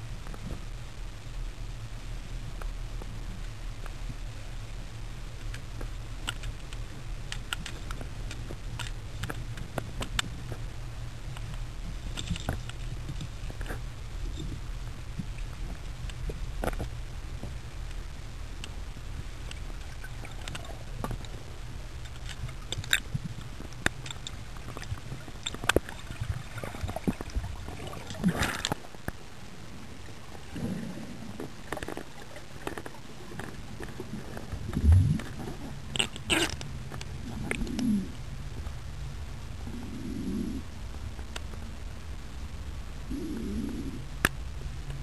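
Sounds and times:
sharp underwater clicks: 0:05.4 - 0:10.7, 0:19.4 - 0:21.4, 0:22.0 - 0:29.2, 0:31.4 - 0:38.1
low underwater rumble: 0:24.3 - 0:36.0.

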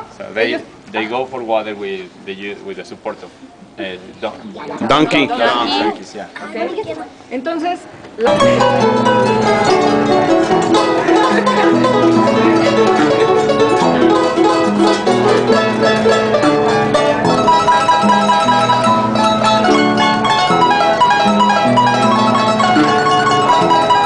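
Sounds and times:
harp playing: 0:08.2 - 0:24.0.

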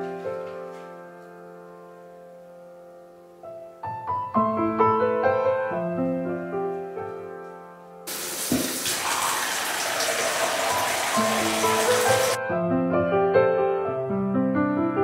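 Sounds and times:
gentle piano music: 0:00.0 - 0:15.0
tap water pouring into bathtub: 0:08.1 - 0:12.4.

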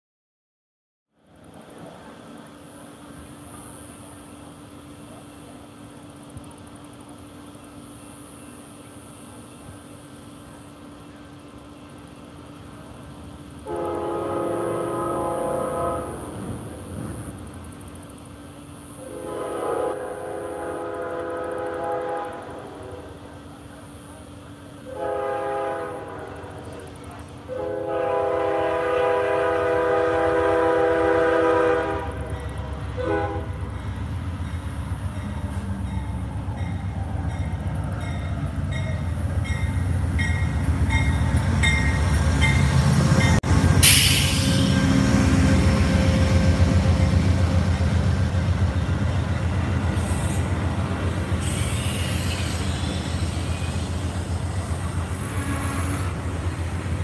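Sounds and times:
train rumbling past: 0:01.1 - 0:57.0
locomotive horn blasts: 0:13.6 - 0:16.4, 0:19.0 - 0:23.0, 0:24.8 - 0:26.6, 0:27.5 - 0:32.4, 0:33.0 - 0:33.7, 0:55.2 - 0:56.2
loud hiss of air: 0:43.8 - 0:45.2, 0:49.9 - 0:55.5.

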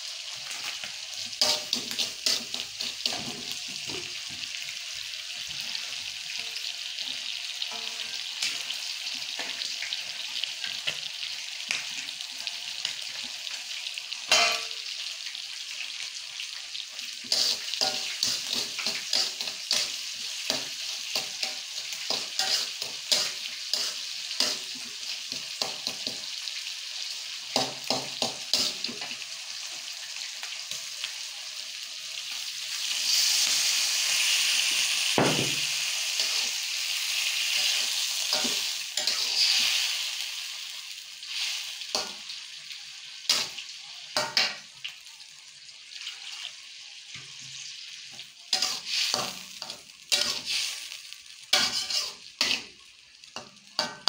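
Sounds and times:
fish sizzling in a wok: 0:00.0 - 0:54.0
metal spatula scraping a pan: 0:14.3 - 0:14.8, 0:17.2 - 0:26.2, 0:37.4 - 0:40.0, 0:48.5 - 0:52.7.

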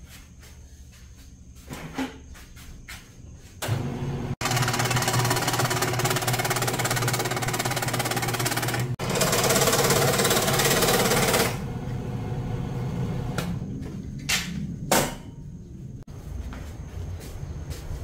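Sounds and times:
power tool running: 0:03.6 - 0:13.4.

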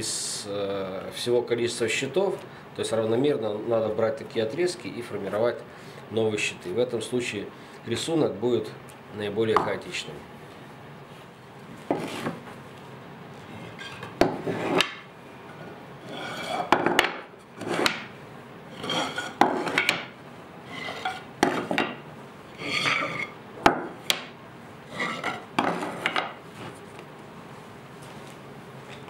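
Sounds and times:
wood strip sliding scrape: 0:11.9 - 0:12.4, 0:13.6 - 0:15.0, 0:16.0 - 0:16.7, 0:17.6 - 0:18.0, 0:18.7 - 0:20.0, 0:20.7 - 0:21.8, 0:22.6 - 0:23.3, 0:24.9 - 0:26.2.

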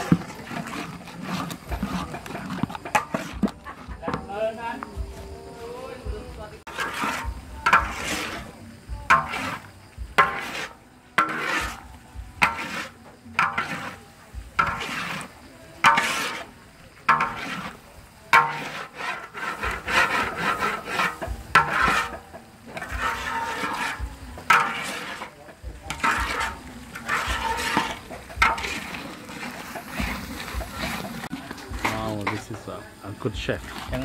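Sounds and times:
metal spatula scraping a wok: 0:00.0 - 0:04.5, 0:06.6 - 0:34.0.

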